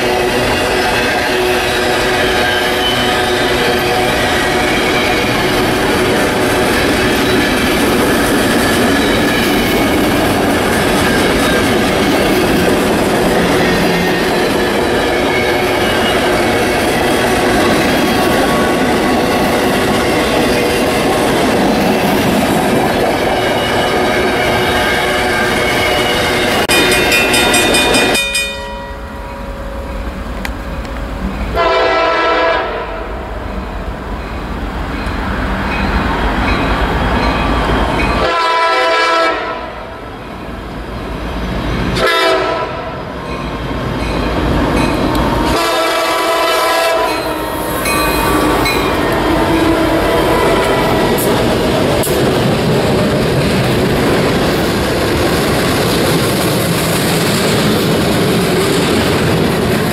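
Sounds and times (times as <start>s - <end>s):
train air horn blasts: 23.4s - 26.8s, 31.5s - 33.2s, 38.2s - 39.9s, 42.0s - 43.0s, 45.5s - 48.8s
freight cars rumbling: 47.0s - 59.9s.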